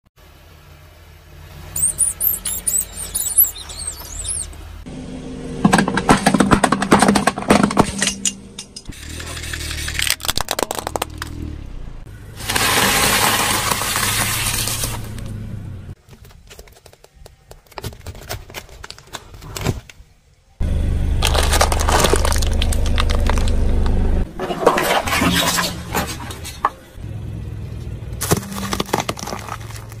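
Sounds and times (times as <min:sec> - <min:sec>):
car engine running low: 0:00.2 - 0:16.0, 0:20.6 - 0:24.4
rubber ducks squeaking: 0:01.8 - 0:04.6
aluminium cans crushed: 0:05.6 - 0:08.3, 0:09.3 - 0:11.3, 0:21.2 - 0:23.6, 0:28.2 - 0:30.0
plastic cracking under a tyre: 0:09.9 - 0:11.4, 0:21.2 - 0:24.0, 0:28.2 - 0:30.0.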